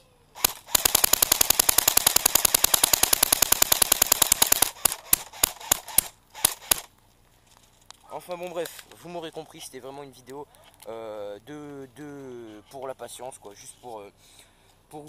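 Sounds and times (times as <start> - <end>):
airsoft gun firing: 0.4 - 6.9.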